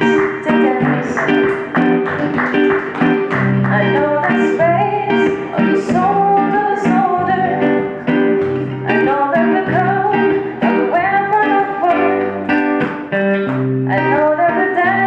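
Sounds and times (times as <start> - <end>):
woman singing: 0.0 - 1.6, 3.6 - 8.0, 8.8 - 12.4, 13.9 - 15.0
acoustic guitar plucked notes: 0.0 - 15.0.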